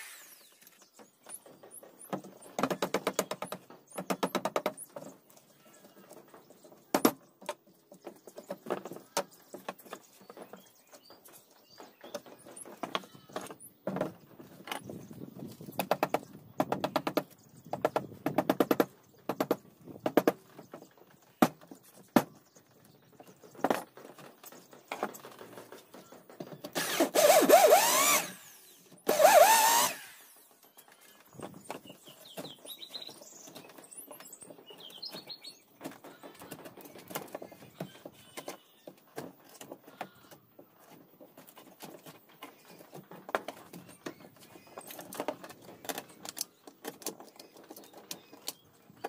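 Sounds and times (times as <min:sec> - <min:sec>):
electric drill whining: 0:26.8 - 0:30.4.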